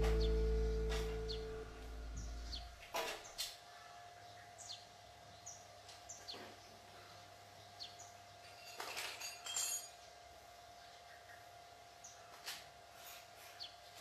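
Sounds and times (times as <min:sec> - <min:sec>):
birds chirping: 0:00.0 - 0:02.8
light sharp clinks: 0:08.5 - 0:10.0.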